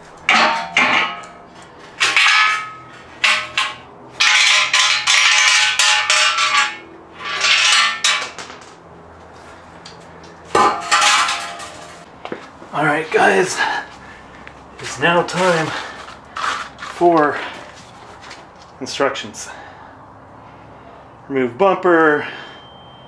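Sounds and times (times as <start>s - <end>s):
metal clanging on concrete: 0.1s - 8.8s, 9.8s - 12.1s.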